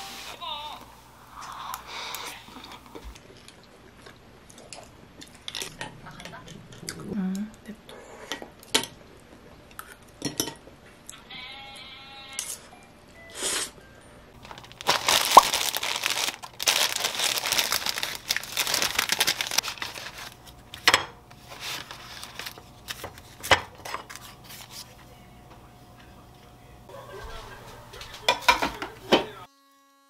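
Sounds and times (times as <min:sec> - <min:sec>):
plastic packaging crinkling: 0:14.4 - 0:20.7, 0:21.4 - 0:23.4.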